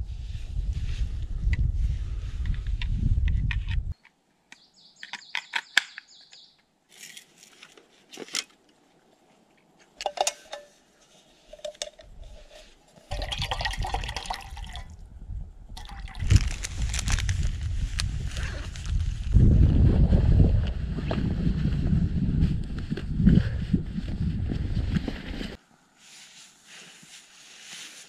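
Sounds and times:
water pouring into steel cup: 13.1s - 15.0s, 15.8s - 16.2s.

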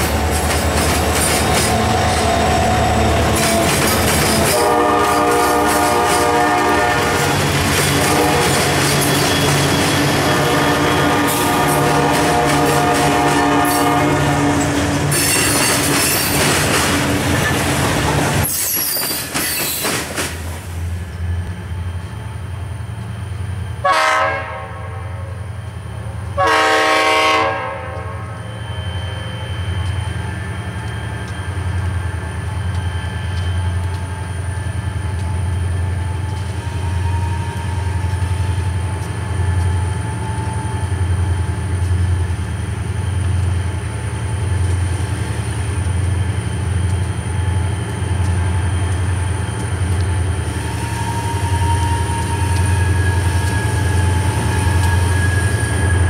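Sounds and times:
train wheels clattering and squealing: 0.0s - 22.3s, 27.9s - 56.0s
locomotive horn blasts: 4.4s - 9.1s, 10.0s - 14.8s, 23.8s - 25.4s, 26.3s - 28.4s.

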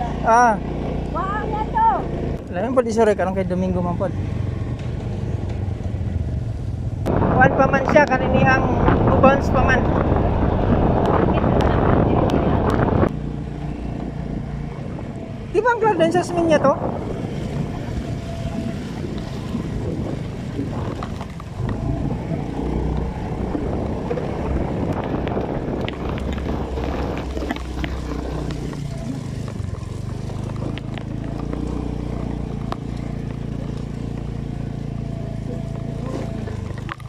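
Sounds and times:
motor scooter engine humming: 0.0s - 7.4s, 8.0s - 37.0s.

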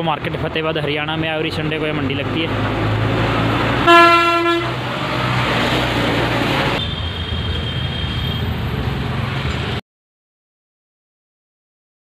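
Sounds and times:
engine humming: 0.3s - 6.8s
vehicle horn toot: 3.8s - 4.8s.

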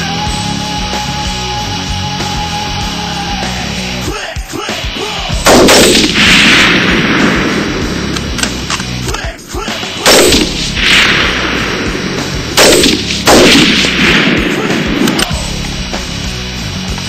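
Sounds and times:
gunshots with echo: 5.4s - 8.6s, 9.7s - 15.4s.

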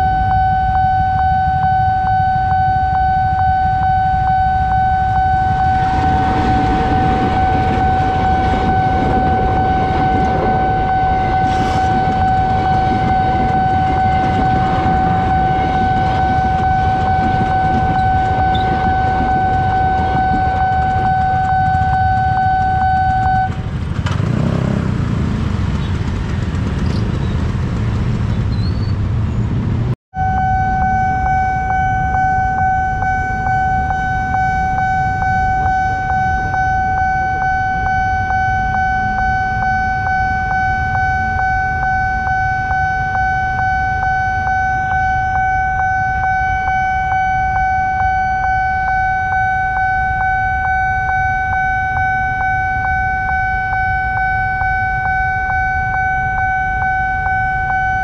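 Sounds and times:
crossing warning alarm: 0.0s - 24.8s, 30.2s - 58.0s
idling engines: 5.3s - 29.9s.

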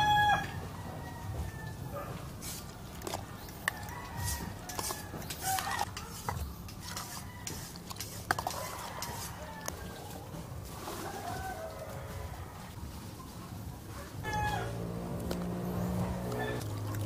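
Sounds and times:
wet stirring and squishing: 2.2s - 11.9s, 15.2s - 17.0s.

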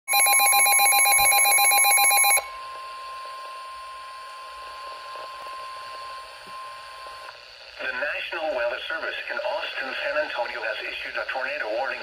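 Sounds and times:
warbling alert alarm: 0.1s - 2.8s.

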